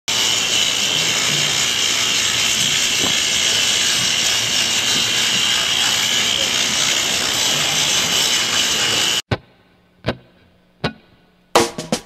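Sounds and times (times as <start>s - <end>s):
steady hiss: 0.1s - 9.8s.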